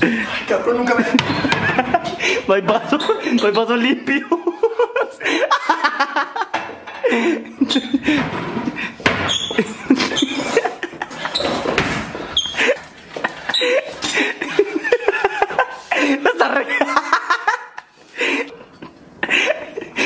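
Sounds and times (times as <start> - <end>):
man laughing hard: 0.0 - 3.3, 3.9 - 8.2, 9.6 - 11.4, 12.6 - 18.6.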